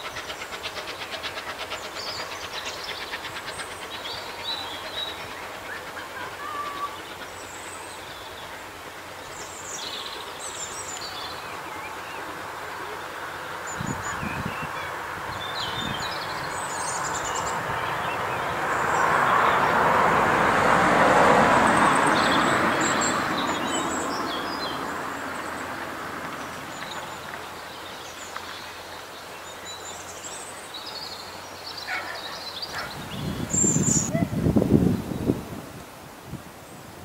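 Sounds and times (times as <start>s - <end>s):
birds chirping and calling: 31.7s - 34.3s.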